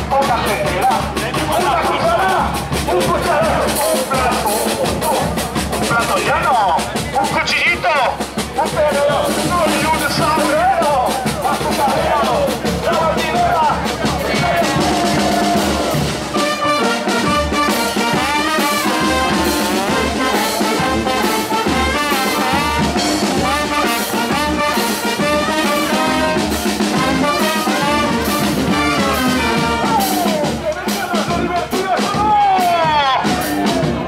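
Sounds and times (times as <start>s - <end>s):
bass drum beat: 0.0s - 34.0s
snare drum: 0.0s - 34.0s
trumpets and trombones playing riffs: 9.0s - 34.0s.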